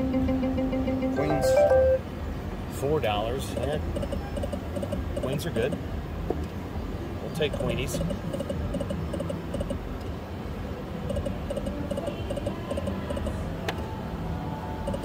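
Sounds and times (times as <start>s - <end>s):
slot machine electronic blips: 0.0s - 2.0s
casino hum: 0.0s - 2.1s.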